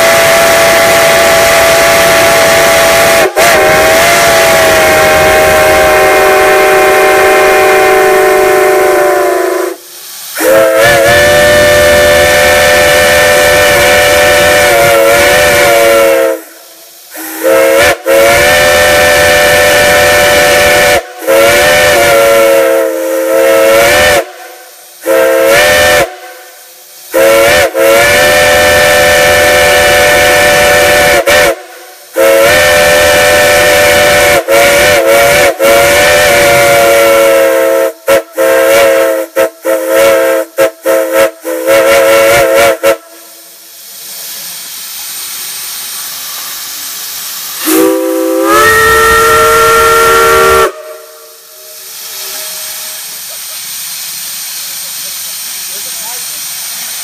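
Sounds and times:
steam whistles chord: 0:00.0 - 0:44.4, 0:45.1 - 0:54.1
steam hissing: 0:00.0 - 0:57.0.

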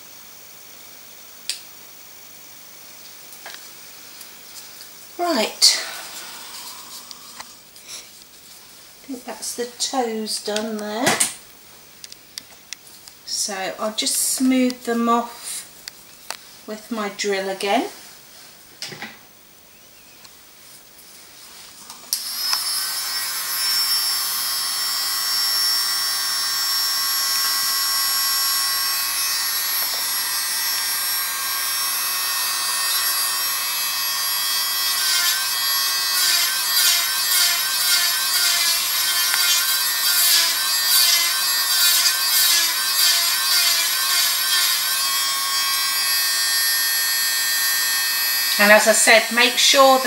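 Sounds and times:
electric nail drill whine: 0:05.2 - 0:07.6, 0:22.1 - 0:50.0.

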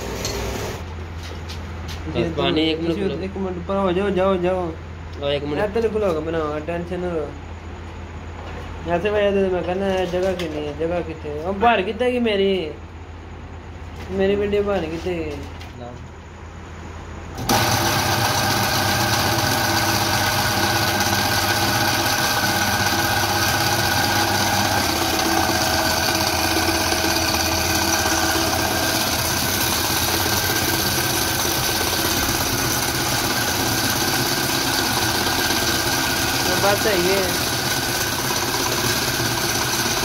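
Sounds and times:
electric motor running water pump: 0:00.0 - 0:00.9, 0:17.4 - 0:40.0.

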